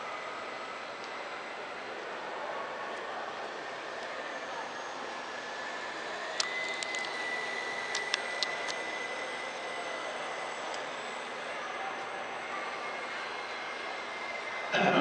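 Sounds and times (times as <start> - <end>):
electric motor and propeller whining: 0.0 - 15.0
sharp clicks: 6.4 - 7.2.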